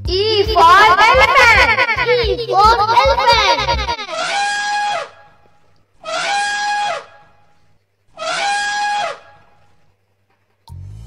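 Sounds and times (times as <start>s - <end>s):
elephant trumpeting: 2.8s - 5.2s, 6.0s - 7.2s, 8.2s - 9.4s.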